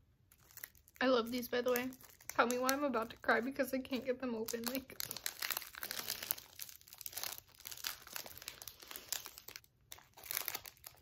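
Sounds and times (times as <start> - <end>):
snack wrapper crinkling: 0.3 - 11.0.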